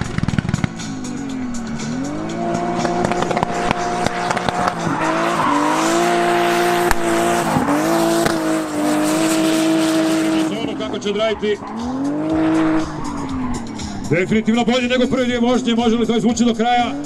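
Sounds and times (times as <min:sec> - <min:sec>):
car engine at high revs: 0:00.0 - 0:15.8, 0:16.4 - 0:17.0
tyres squealing: 0:03.9 - 0:06.6, 0:10.3 - 0:14.3.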